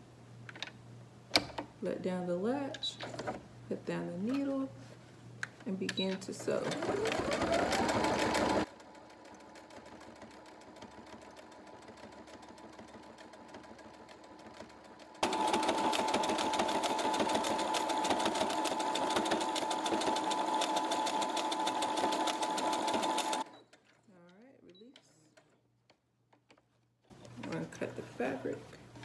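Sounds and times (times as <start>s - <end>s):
sewing machine stitching: 6.4s - 23.5s.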